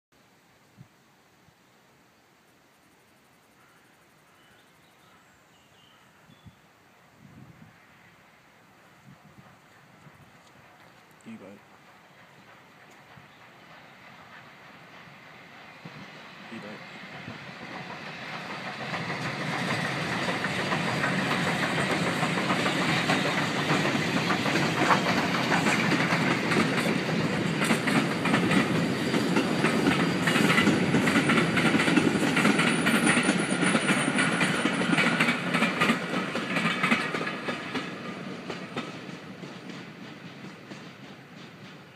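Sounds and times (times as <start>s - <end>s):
steam train passing: 2.7s - 41.9s
wheels clicking over rail joints: 9.5s - 15.2s, 16.6s - 41.9s.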